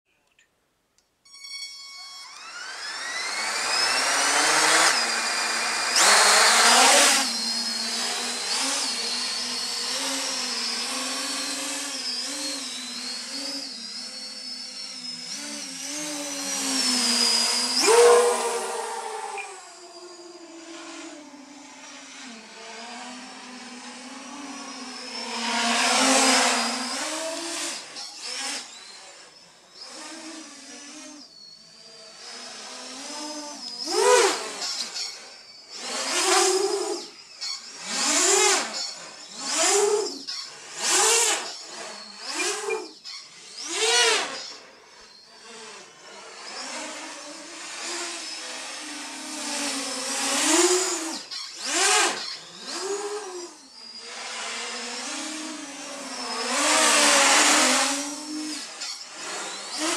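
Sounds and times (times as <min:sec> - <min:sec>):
quadcopter motors whining: 0:01.3 - 0:59.9
throttle bursts rising in pitch: 0:16.7 - 0:20.5.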